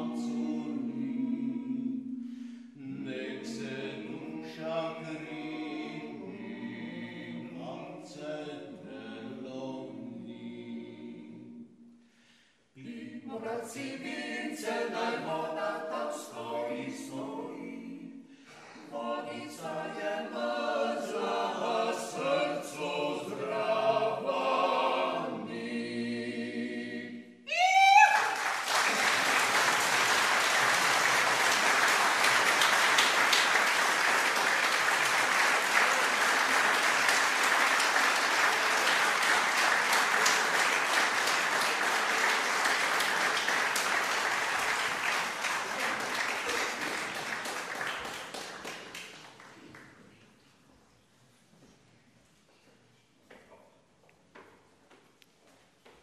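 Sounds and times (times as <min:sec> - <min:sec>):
a cappella group singing: 0:00.0 - 0:27.4
loud rising cry: 0:27.4 - 0:28.6
audience applause: 0:27.8 - 0:49.8.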